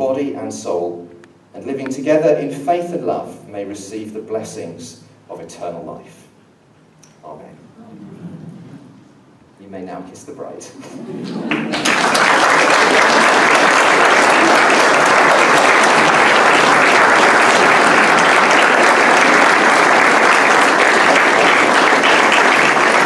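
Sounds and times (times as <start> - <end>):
congregation applauding: 11.0 - 23.0.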